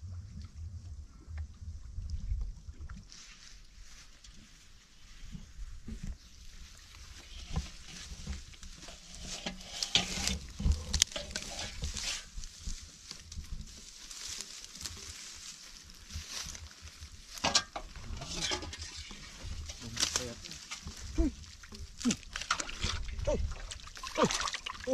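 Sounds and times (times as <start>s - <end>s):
footsteps in muddy water: 1.8s - 24.9s
footsteps rustling through dry grass: 3.1s - 22.4s.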